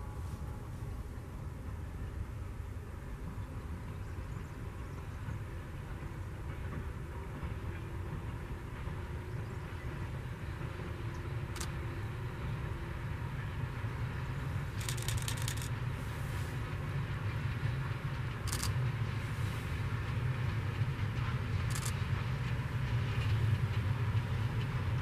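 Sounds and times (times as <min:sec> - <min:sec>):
diesel locomotive rumble: 0:00.0 - 0:25.0
sharp clicks: 0:14.8 - 0:15.7.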